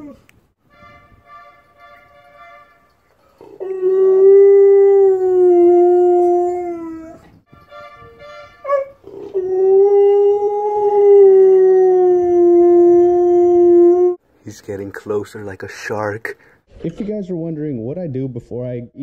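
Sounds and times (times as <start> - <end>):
dog howling: 3.4 - 7.3
dog yipping: 8.6 - 9.2.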